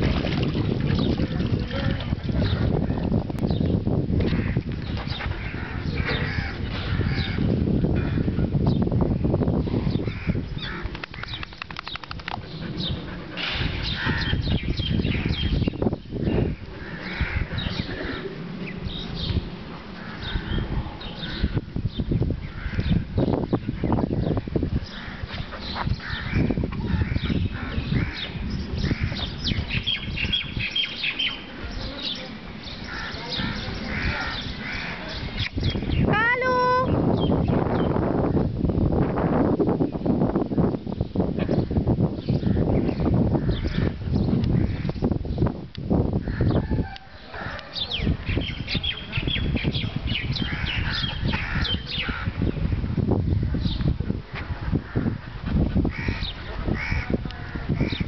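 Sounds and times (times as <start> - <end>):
birds chirping: 0.1 - 38.1, 40.9 - 45.5, 46.2 - 54.0, 54.6 - 58.0
crows cawing: 5.4 - 8.3, 10.1 - 10.9, 16.8 - 18.2, 32.9 - 35.1, 50.5 - 52.3, 55.9 - 58.0.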